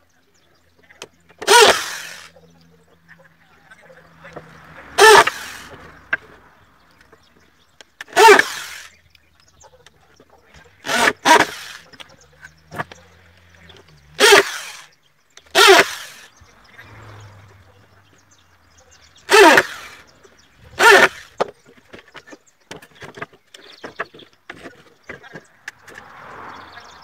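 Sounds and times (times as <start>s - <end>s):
electric drill boring into wood: 1.4s - 2.3s, 5.0s - 5.7s, 8.0s - 8.9s, 10.8s - 12.0s, 14.2s - 14.9s, 15.5s - 16.3s, 19.3s - 20.0s, 20.8s - 21.4s.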